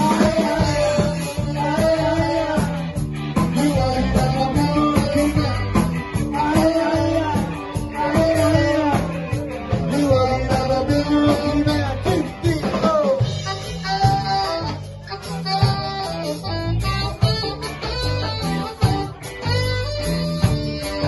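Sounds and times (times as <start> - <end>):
man singing into a microphone: 0.0 - 14.4
live ska band playing: 0.0 - 21.0.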